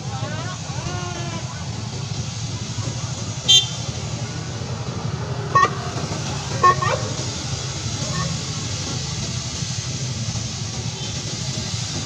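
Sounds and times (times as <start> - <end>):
traffic engine rumble: 0.0 - 12.0
car horn toots: 3.5 - 3.9, 5.5 - 5.8, 6.6 - 7.1.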